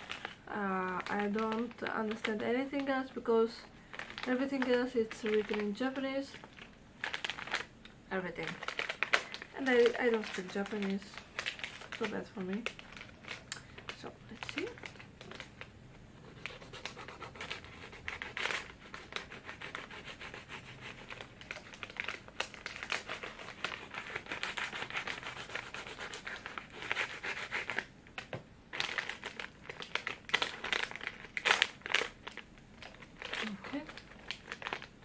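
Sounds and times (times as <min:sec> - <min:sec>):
snack wrapper crinkling: 0:03.9 - 0:15.7, 0:20.7 - 0:27.9, 0:28.7 - 0:35.0
knife scraping wrapper: 0:16.3 - 0:27.9.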